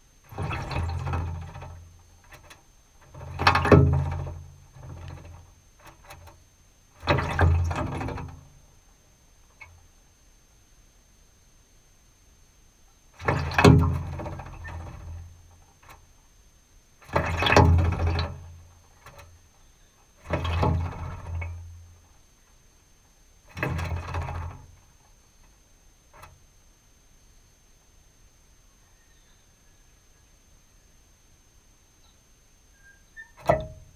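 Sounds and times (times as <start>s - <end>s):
bird splashing in water trough: 0.2s - 8.8s, 13.1s - 16.1s, 17.0s - 19.5s, 20.2s - 22.1s, 23.4s - 26.4s, 33.2s - 33.9s.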